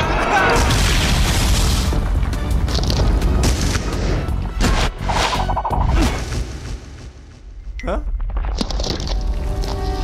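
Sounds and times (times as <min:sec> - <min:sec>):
action cartoon music: 0:00.0 - 0:07.4.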